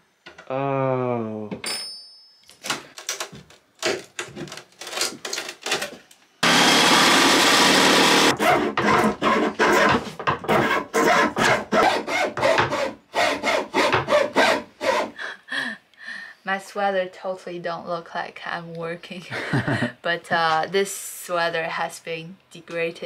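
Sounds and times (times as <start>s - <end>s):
hacksaw cutting wood: 6.4s - 15.2s.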